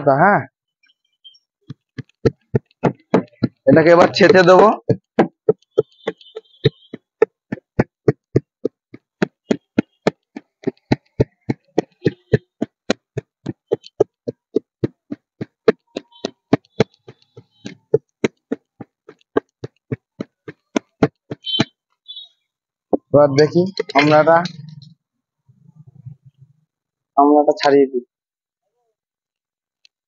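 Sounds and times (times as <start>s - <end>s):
wooden pestle pounding in metal pot: 1.7s - 21.7s.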